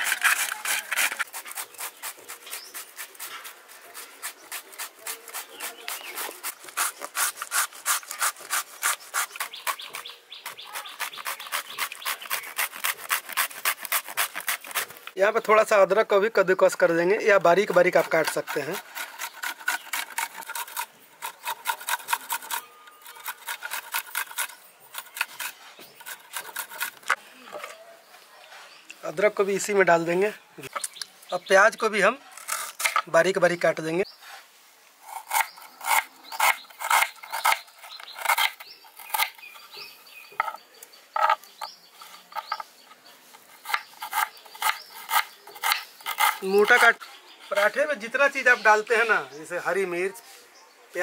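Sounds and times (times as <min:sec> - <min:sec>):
gourd scraping on metal grater: 0:00.0 - 0:15.0, 0:17.5 - 0:27.2.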